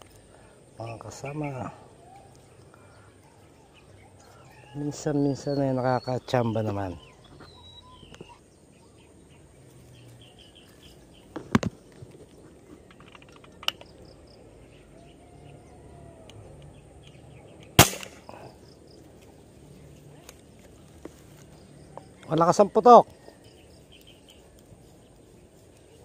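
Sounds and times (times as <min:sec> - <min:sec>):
birds chirping: 0:00.0 - 0:26.0
air gun cracks: 0:17.6 - 0:18.5.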